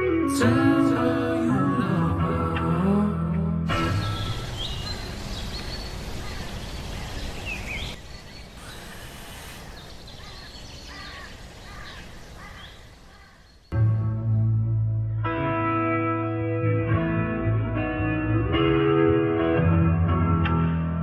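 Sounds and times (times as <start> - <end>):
background hiss: 3.7 - 13.6
birds chirping: 3.7 - 13.8.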